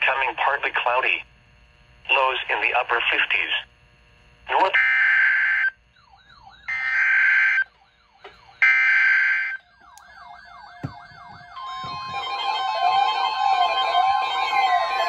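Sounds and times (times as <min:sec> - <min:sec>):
harsh buzzing data tones: 0:00.0 - 0:15.0
steady single-pitch warning tone: 0:04.5 - 0:15.0
warbling siren-like alert tones: 0:04.6 - 0:15.0.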